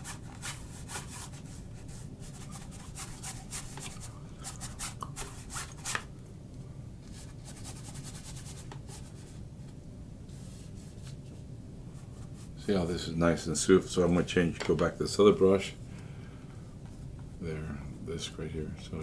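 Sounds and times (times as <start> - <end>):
paintbrush scratching on canvas: 0.0 - 6.0, 7.1 - 9.4.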